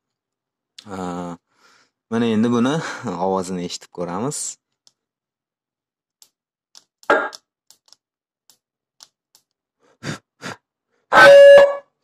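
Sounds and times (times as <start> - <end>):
police siren blips: 11.1 - 11.8
siren horn blast: 11.1 - 11.9.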